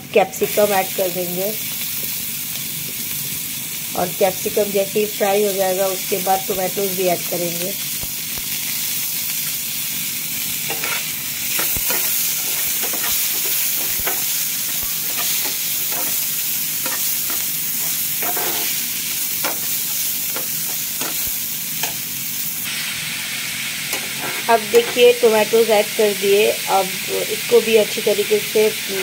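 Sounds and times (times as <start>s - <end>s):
vegetables sizzling in oil: 0.0s - 29.0s
spatula scraping a pan: 10.7s - 14.3s, 15.0s - 18.8s, 23.9s - 25.0s.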